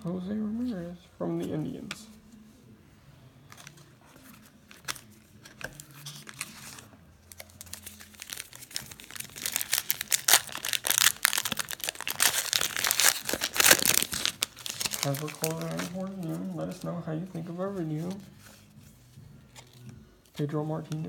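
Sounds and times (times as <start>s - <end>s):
foil wrapper crinkling: 6.1s - 16.9s.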